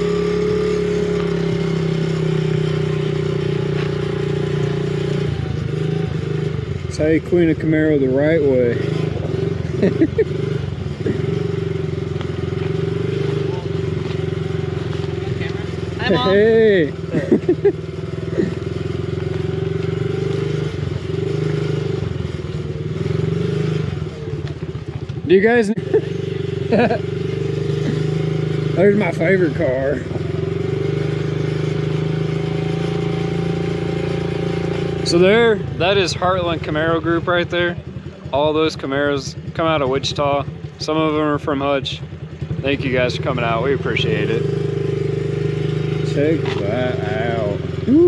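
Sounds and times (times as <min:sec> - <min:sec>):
motorbike engine running: 0:00.0 - 0:48.0.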